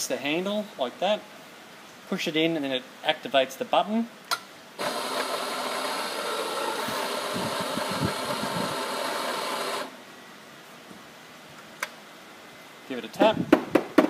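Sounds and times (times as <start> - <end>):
coffee grinder grinding: 4.8 - 10.0.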